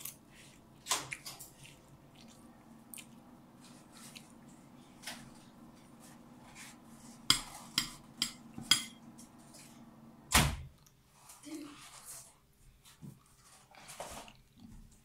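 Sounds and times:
low steady hum: 0.0 - 11.4.

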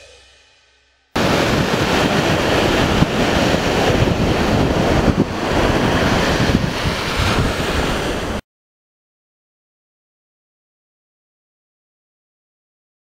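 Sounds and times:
ocean surf breaking: 1.2 - 8.4
wind buffeting microphone: 1.2 - 8.4.

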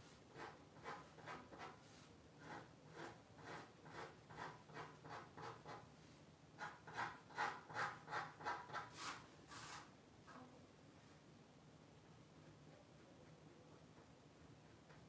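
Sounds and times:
pen scratching on paper: 0.3 - 5.9, 6.6 - 9.2
paper sliding across desk: 8.9 - 9.9.

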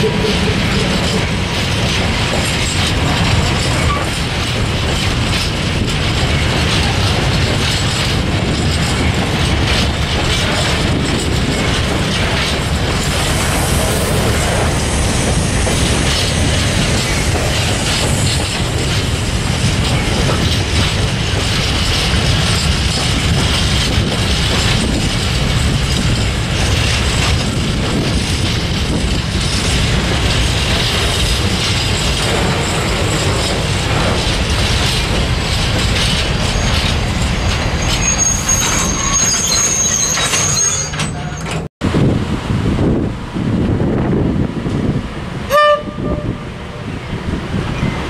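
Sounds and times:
freight train rumbling past: 0.0 - 48.0
high-pitched wheel squeal: 36.4 - 41.6.

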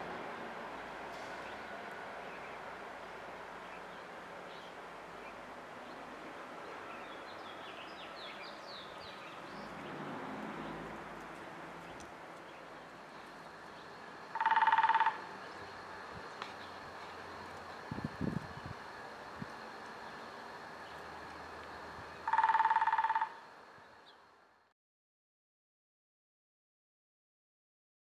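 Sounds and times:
faint background noise: 0.0 - 24.7
woodpecker rolling call: 9.2 - 17.9, 19.6 - 23.5.

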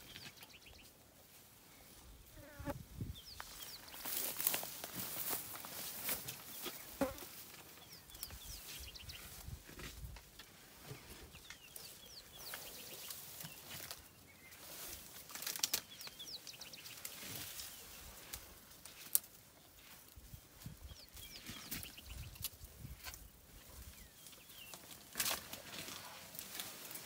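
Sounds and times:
twigs snapping: 15.3 - 15.9
elephant browsing through leaves: 24.7 - 27.0.

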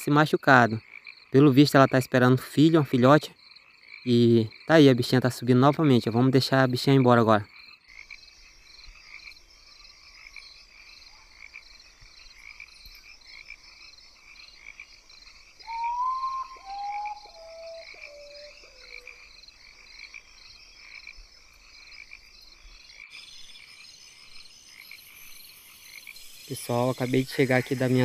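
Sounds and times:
frogs calling: 0.1 - 28.0
descending whistled notes: 15.6 - 19.1, 25.1 - 28.0.

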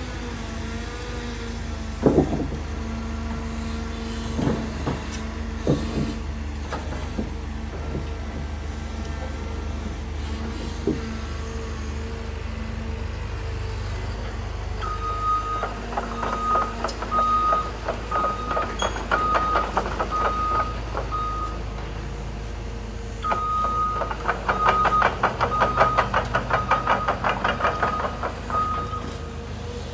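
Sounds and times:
diesel engines running: 0.0 - 29.9
backup alarm beeping: 14.8 - 21.6, 27.9 - 29.1.

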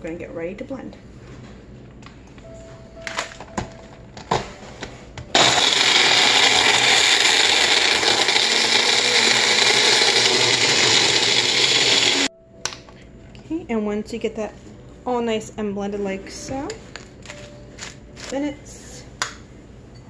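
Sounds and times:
blender blending ice: 5.4 - 12.3.

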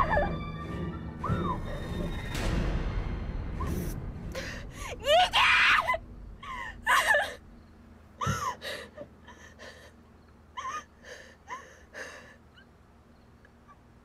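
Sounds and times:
woman sobbing: 0.0 - 0.4, 4.4 - 7.4, 8.2 - 12.7.

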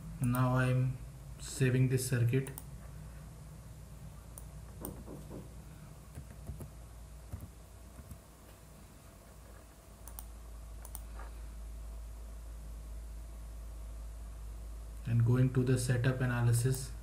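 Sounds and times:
low steady hum: 0.0 - 17.0
keyboard and mouse clicks: 4.4 - 5.5, 6.1 - 6.7, 7.3 - 8.2, 10.0 - 11.2.

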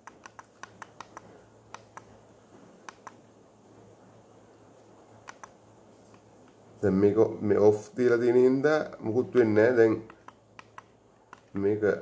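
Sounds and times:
push buttons clicking: 0.0 - 2.1, 2.8 - 3.2, 5.2 - 6.6, 10.0 - 11.6
faint steady hum: 0.0 - 12.0.

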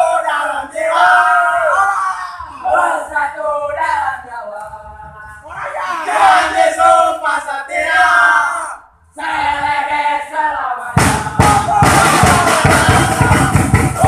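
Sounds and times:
football crowd chanting: 0.0 - 4.2, 5.6 - 14.0
loud drumming: 10.9 - 14.0.

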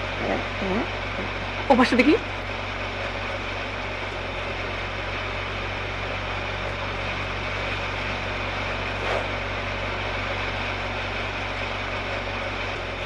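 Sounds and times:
low hum: 0.0 - 13.0.

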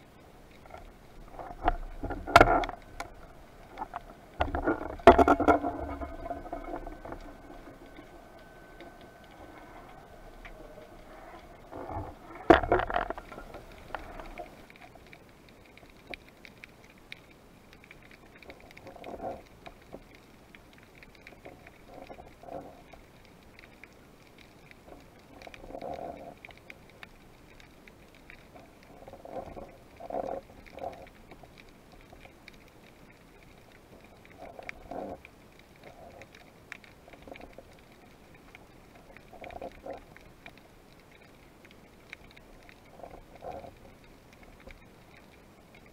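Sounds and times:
faint steady hiss: 0.0 - 45.9
underwater swishes of water: 0.0 - 45.9.

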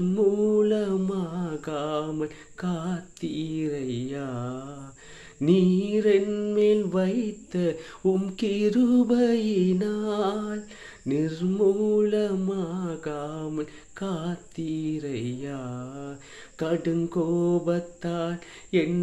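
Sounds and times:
man singing unaccompanied: 0.0 - 19.0.

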